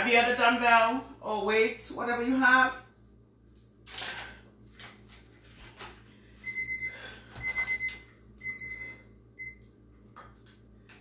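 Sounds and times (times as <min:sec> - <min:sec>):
electronic timer beeping: 0:06.4 - 0:09.6.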